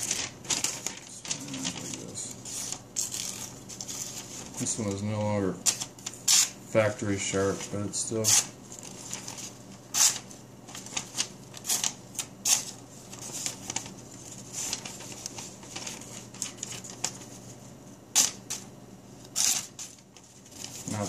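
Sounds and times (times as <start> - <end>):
knife tearing through paper: 8.2 - 17.2, 18.2 - 18.6, 19.3 - 21.0.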